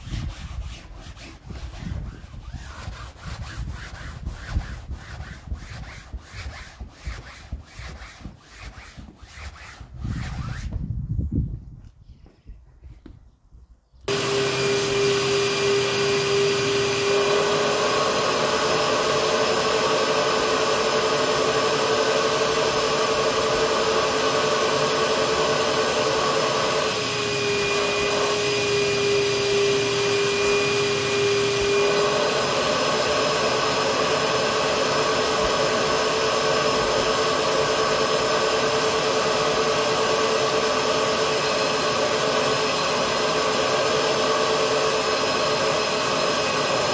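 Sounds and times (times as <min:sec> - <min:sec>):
vacuum motor whining: 0:14.1 - 0:46.9.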